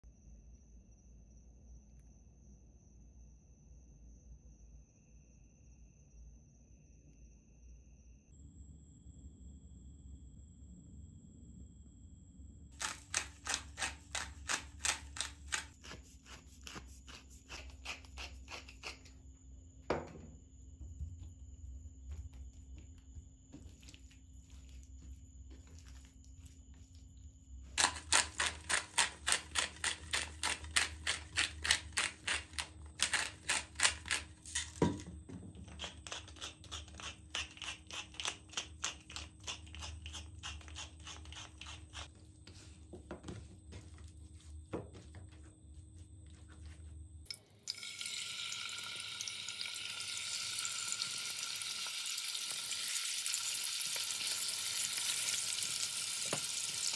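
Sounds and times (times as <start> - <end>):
pepper mill grinding: 12.8 - 19.1, 27.8 - 42.1, 47.3 - 56.9
chicken sizzling in skillet: 47.7 - 56.9.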